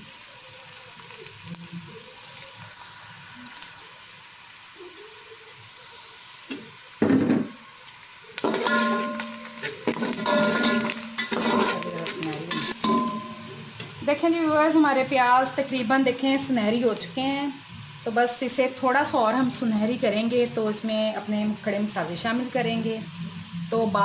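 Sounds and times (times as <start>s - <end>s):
onions sizzling in hot oil: 0.0s - 24.0s
spoon scraping a pot: 8.4s - 14.0s.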